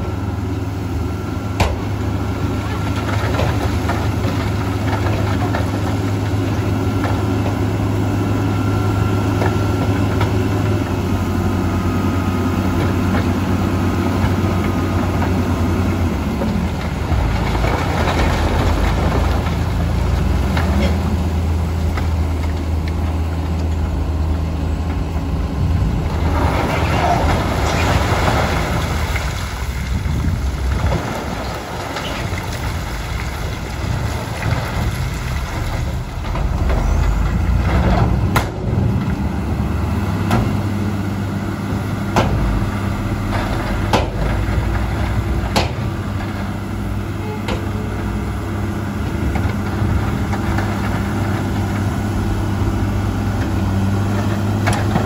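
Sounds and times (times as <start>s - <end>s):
diesel engine running: 0.0s - 55.0s
stones rumbling out: 14.1s - 40.7s, 42.0s - 47.1s.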